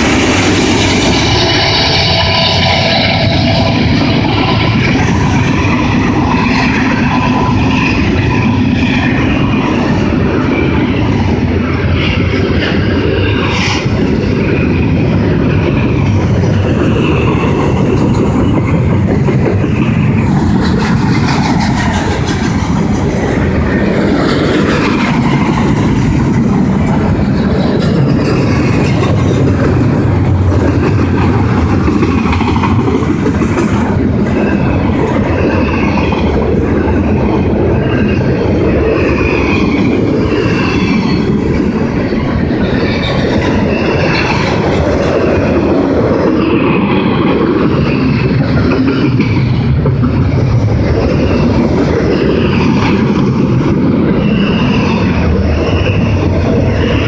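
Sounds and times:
high wheel squeal: 0.0 - 11.0, 34.3 - 45.6, 54.0 - 57.0
train wheels rumbling on rail: 0.0 - 57.0.

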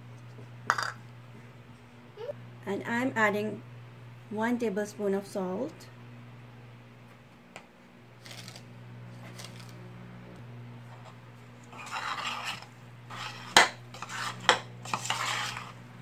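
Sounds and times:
steady low hum: 0.0 - 16.0
metal spoon scraping a pot: 11.7 - 15.8.

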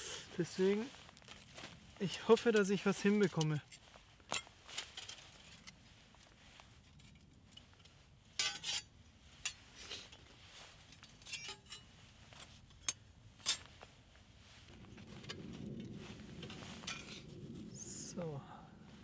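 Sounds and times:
metal stove parts clinking: 8.4 - 9.6, 11.0 - 11.9, 12.7 - 13.7.

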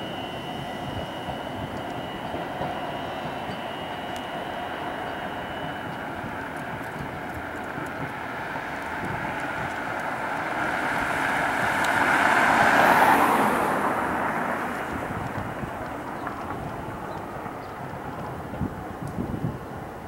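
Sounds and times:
car passing by: 9.1 - 16.6.

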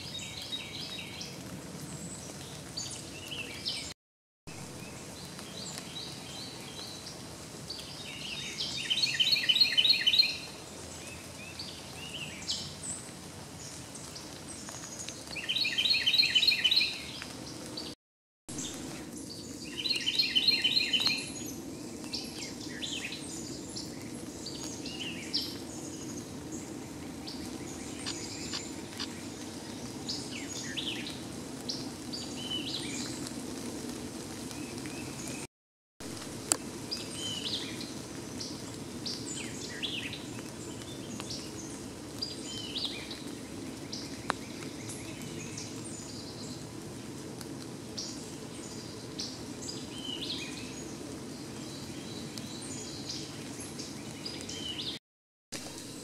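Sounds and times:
songbird singing rapid notes: 27.7 - 29.2.

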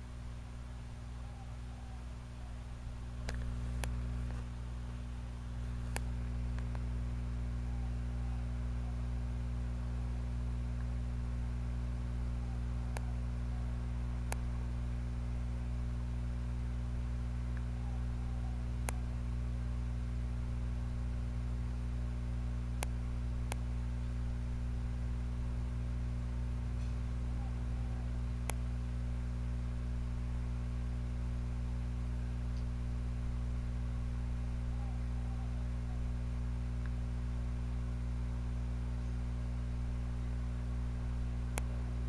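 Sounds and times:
steady low hum: 0.0 - 42.0
faint clicks: 3.2 - 4.5, 5.8 - 6.9, 14.3 - 14.5, 22.8 - 23.7, 41.5 - 41.8.

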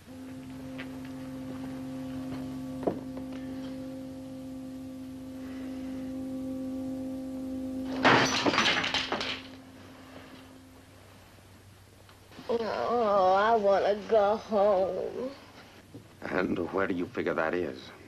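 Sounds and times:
low sustained film score note: 0.0 - 13.9.

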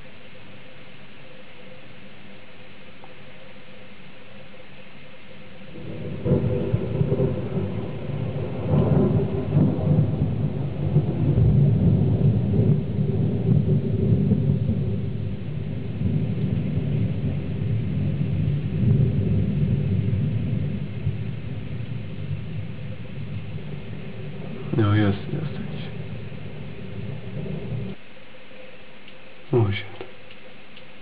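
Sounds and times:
thunder rumbling: 5.4 - 28.0.

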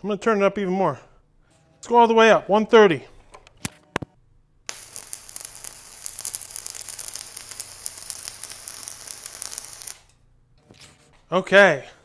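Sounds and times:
welding arc crackling: 4.7 - 10.2.

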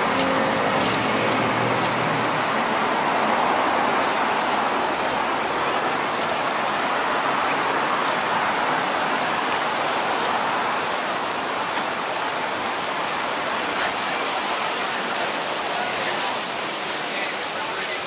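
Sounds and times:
passing traffic: 0.0 - 18.0
people walking: 0.0 - 18.0.

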